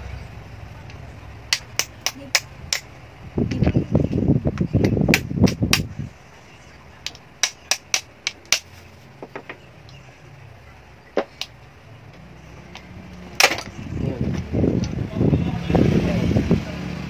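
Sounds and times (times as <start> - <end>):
sharp plastic clicks and snaps: 0.8 - 2.9, 7.0 - 8.7.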